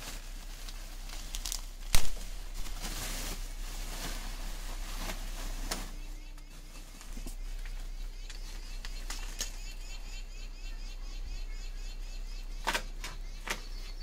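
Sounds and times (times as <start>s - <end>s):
rustling of things handled: 0.0s - 9.7s.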